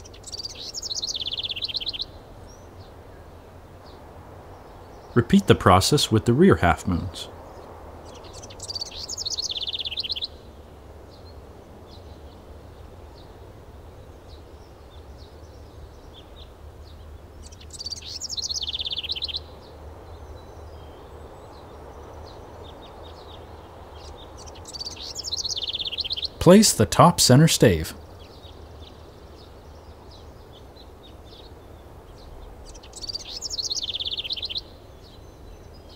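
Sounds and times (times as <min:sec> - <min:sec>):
low outdoor background hum: 0:00.0 - 0:35.9
songbird singing: 0:00.0 - 0:35.9.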